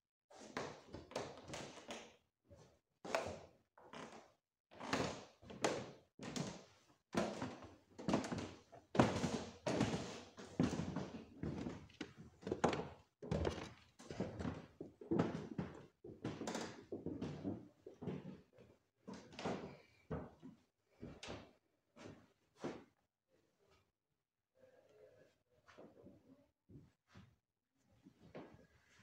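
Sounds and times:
footsteps on wooden floorboards: 0:07.2 - 0:22.8.

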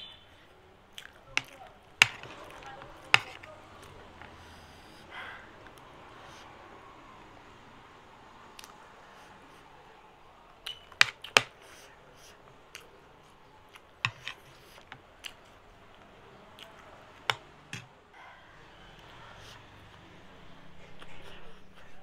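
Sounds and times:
mouth eating sounds: 0:00.1 - 0:01.8
metal spoon scraping a plate: 0:02.0 - 0:03.5, 0:14.0 - 0:15.0.

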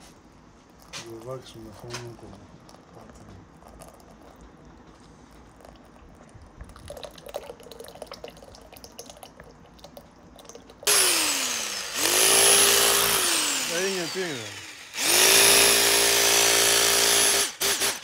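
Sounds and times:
electric hammer drill running: 0:10.9 - 0:18.0.

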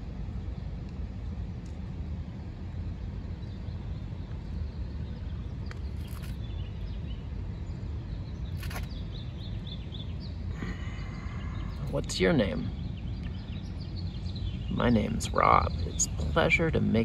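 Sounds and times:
small bird chirping: 0:03.4 - 0:17.0
rustles: 0:05.7 - 0:06.5, 0:08.5 - 0:09.0.

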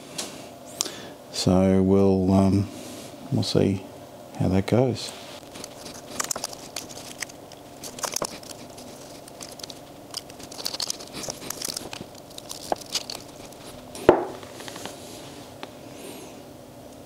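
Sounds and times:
tape tearing: 0:05.4 - 0:14.9
plastic pieces clicking and tapping: 0:06.1 - 0:13.8.

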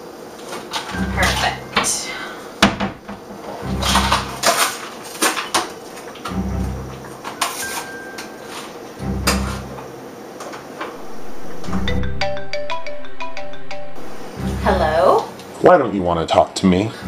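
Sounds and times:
low hum: 0:11.0 - 0:15.6.

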